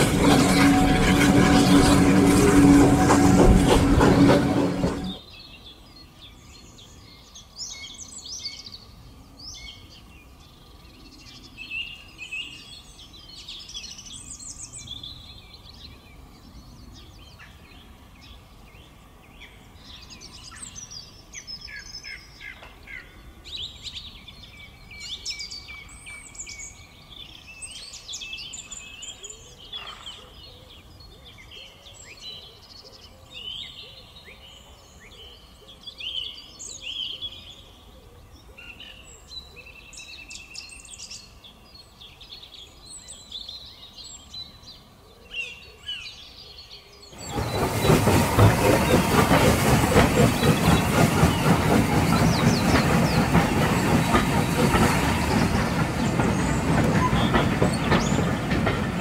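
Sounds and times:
train running past: 0:00.0 - 0:05.3, 0:47.1 - 0:59.0
birds singing and chirping: 0:00.0 - 0:59.0.

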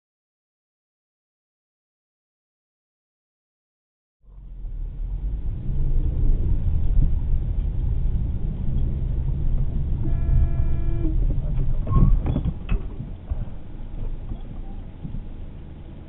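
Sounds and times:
car driving rumble inside cabin: 0:04.3 - 0:16.0
car horn: 0:09.9 - 0:11.3.

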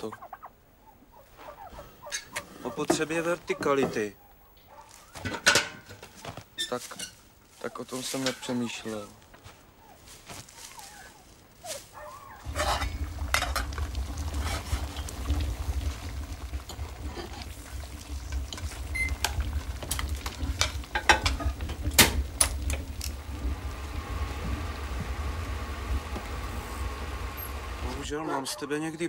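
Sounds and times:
dishes and cutlery clinking: 0:05.2 - 0:06.0
low hum: 0:12.1 - 0:28.1.

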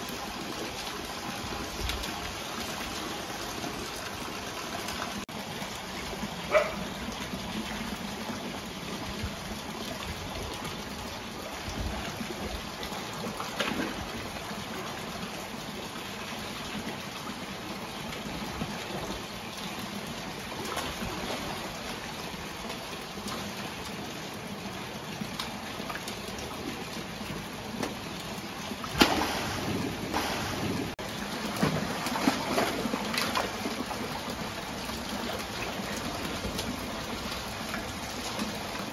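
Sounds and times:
water trickling and splashing: 0:00.0 - 0:38.9
crocodiles splashing: 0:28.9 - 0:38.9.

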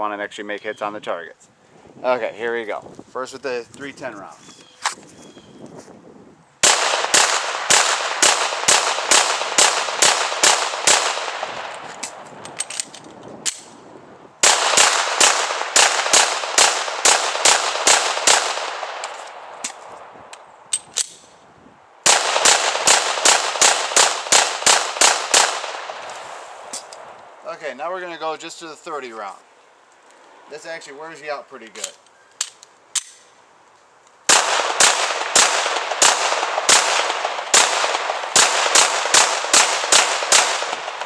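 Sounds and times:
pistol shots with echo: 0:06.6 - 0:11.8, 0:14.4 - 0:19.6, 0:22.0 - 0:26.1, 0:34.3 - 0:41.0.

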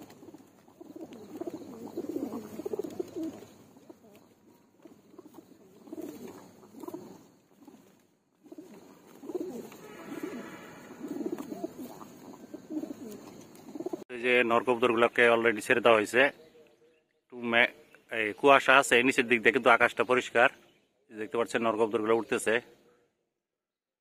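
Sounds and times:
pigeons cooing: 0:00.0 - 0:14.1.

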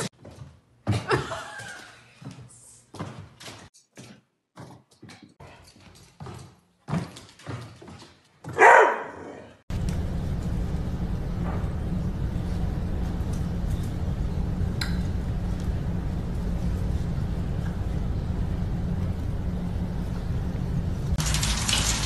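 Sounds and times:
dog barking: 0:08.5 - 0:09.6
steady low hum: 0:09.7 - 0:21.3.

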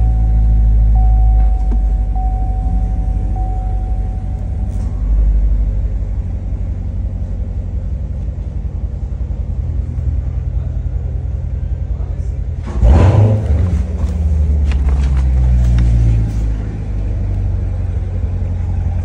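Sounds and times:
dashboard warning chime: 0:00.0 - 0:05.1
car engine idling: 0:00.0 - 0:19.0.

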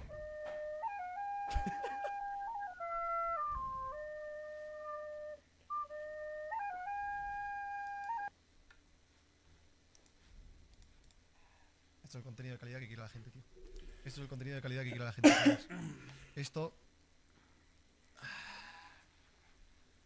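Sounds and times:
recorder playing slow tune: 0:00.0 - 0:08.3.

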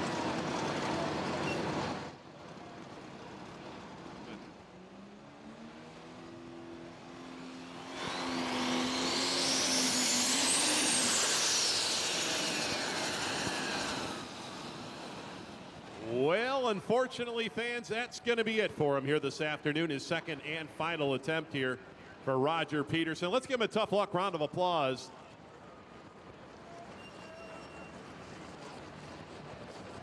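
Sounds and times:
tractor diesel engine revving: 0:05.0 - 0:15.4
turbo whine: 0:06.3 - 0:15.7.

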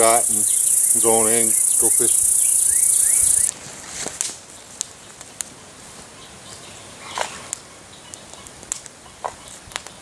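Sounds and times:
footsteps on grass and leaves: 0:03.2 - 0:04.6.

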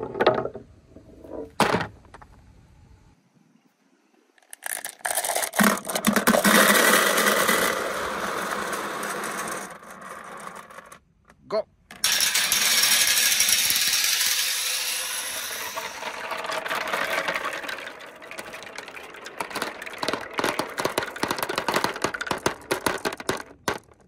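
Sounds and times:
marbles clattering on wood: 0:04.4 - 0:11.0, 0:11.9 - 0:24.0
marbles rolling on steel rail: 0:04.4 - 0:11.0, 0:11.9 - 0:24.0.

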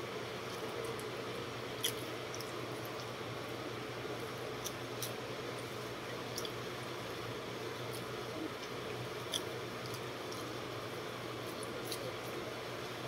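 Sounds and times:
steady background hum: 0:00.0 - 0:13.0
wet chewing sounds: 0:00.4 - 0:03.2, 0:04.2 - 0:06.7, 0:07.8 - 0:10.8, 0:11.4 - 0:12.5.

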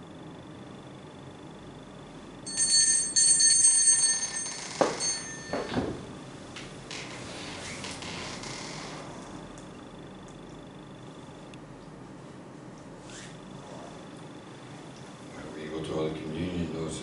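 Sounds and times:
altar bells ringing: 0:02.5 - 0:05.9.

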